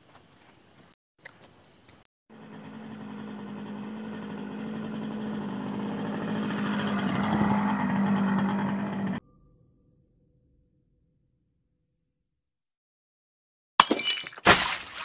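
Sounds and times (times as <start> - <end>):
vehicle engine humming: 2.3 - 9.2.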